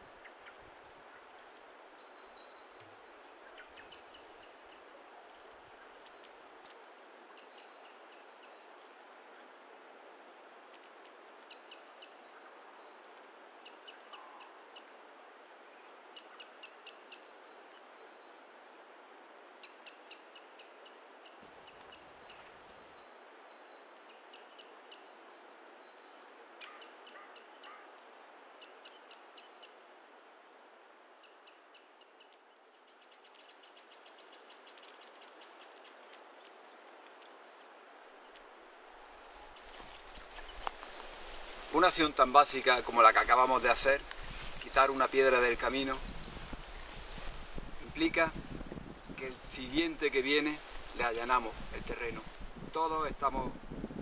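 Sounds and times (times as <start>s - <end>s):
small birds chirping: 0.0s - 9.1s, 19.3s - 26.0s, 26.6s - 54.0s
steady hiss: 37.5s - 54.0s.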